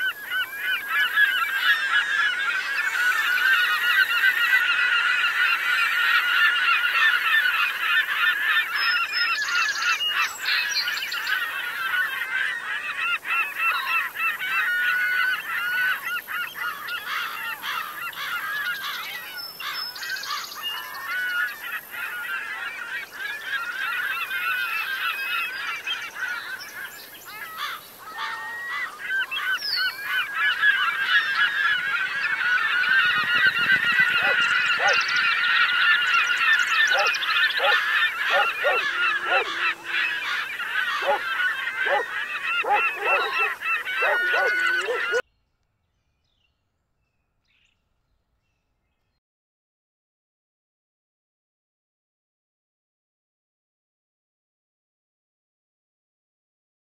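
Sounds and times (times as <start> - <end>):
gulls calling: 0.0 - 45.2.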